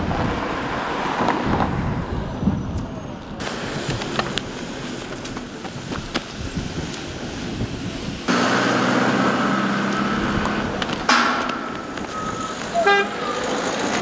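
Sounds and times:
outdoor noise: 0.0s - 14.0s
sudden sharp noise: 11.1s - 13.3s.

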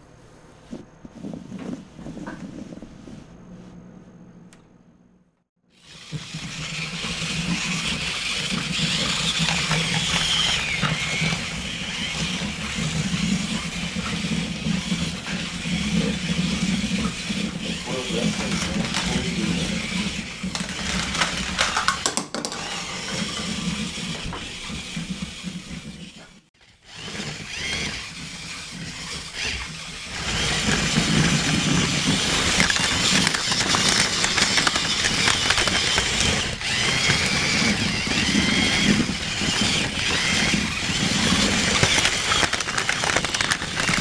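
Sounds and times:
toy robots whirring and clattering: 5.8s - 44.0s.

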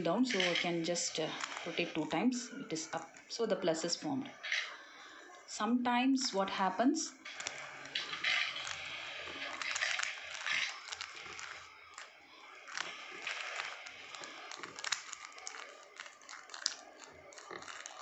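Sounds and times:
fingers rubbing plastic: 0.1s - 2.0s, 7.3s - 18.0s
puzzle cube clicking: 7.3s - 18.0s.

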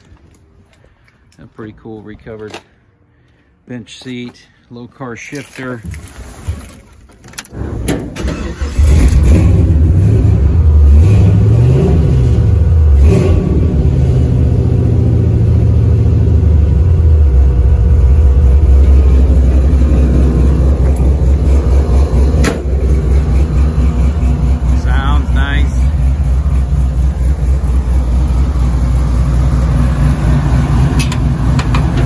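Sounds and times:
engine cranking: 7.2s - 9.6s
engine revving: 8.2s - 32.0s
engine idling: 13.8s - 32.0s.

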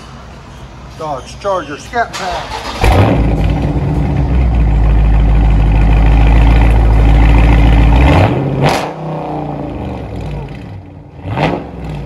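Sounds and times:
car engine running loud: 2.6s - 12.0s.

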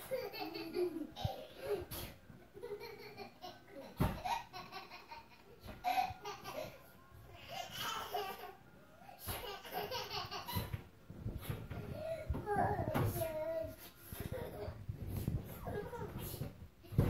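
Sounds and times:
toddler giggling: 0.0s - 6.8s, 9.2s - 10.8s.

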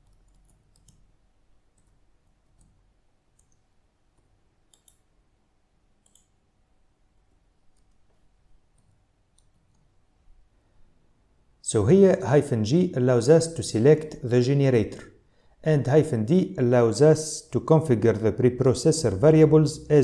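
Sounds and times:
faint keyboard typing clicks: 0.0s - 5.1s, 6.0s - 6.4s, 7.7s - 9.9s.

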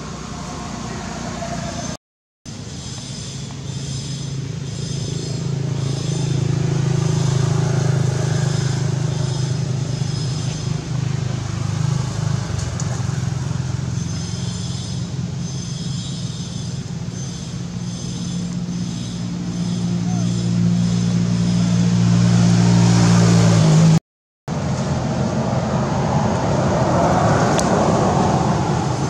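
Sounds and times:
vehicle engine humming: 0.0s - 29.0s.

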